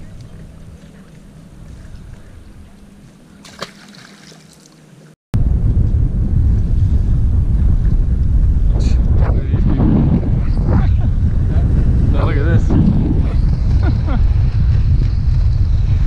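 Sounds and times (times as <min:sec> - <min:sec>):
boat engine rumble: 0:00.0 - 0:16.0
low steady hum: 0:00.0 - 0:16.0
wind buffeting microphone: 0:05.4 - 0:16.0.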